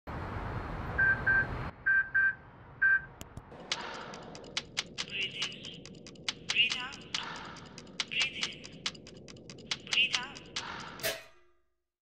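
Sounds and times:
quick irregular clicks: 3.2 - 11.0.

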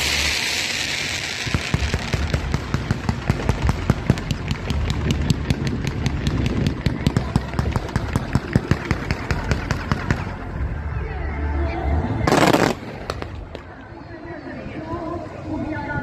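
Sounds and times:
fireworks popping: 0.0 - 10.5, 12.3 - 13.9
low rumble: 1.8 - 16.0.

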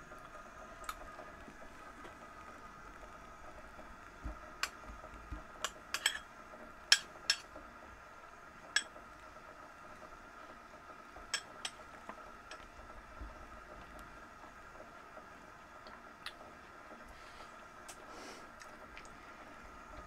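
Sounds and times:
metal spoon clinking bowl: 6.0 - 6.2.

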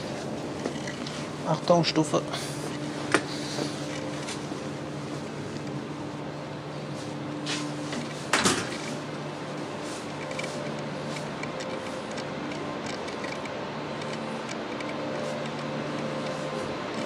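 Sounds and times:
machine hall hum: 0.0 - 17.0
loud clunk: 8.3 - 8.8.

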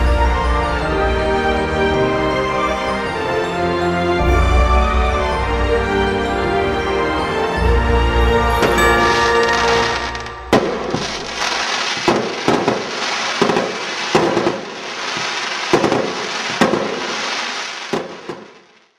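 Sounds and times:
music: 0.0 - 11.8
fireworks bangs: 8.5 - 18.9
fireworks crackling and fizzing: 8.5 - 18.9.

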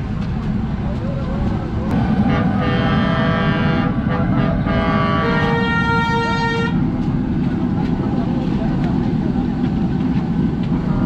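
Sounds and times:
street traffic rumble: 0.0 - 11.0
vehicle horns honking: 2.3 - 6.8.

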